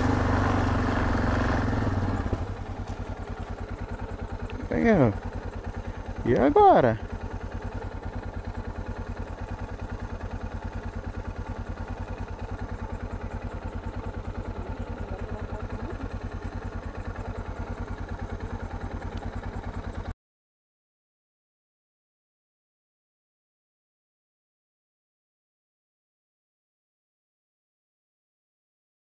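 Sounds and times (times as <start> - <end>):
motorcycle engine running: 0.0 - 20.2.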